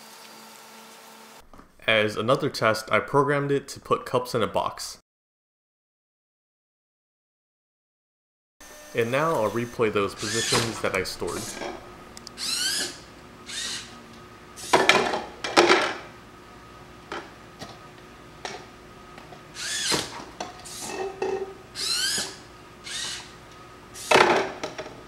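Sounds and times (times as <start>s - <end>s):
servo motors whining: 8.6s - 14.8s, 19.5s - 20.9s, 21.8s - 23.4s
plastic cups clattering: 20.1s - 21.6s.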